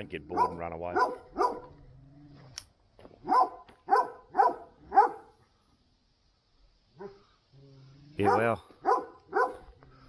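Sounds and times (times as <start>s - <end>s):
dog barking: 0.3s - 1.8s, 3.2s - 5.4s, 7.0s - 7.2s, 8.2s - 9.7s.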